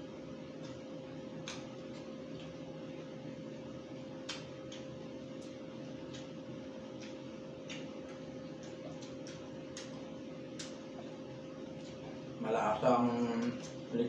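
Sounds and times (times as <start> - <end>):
low steady hum: 0.0 - 14.0
man chewing with mouth open: 0.4 - 12.4.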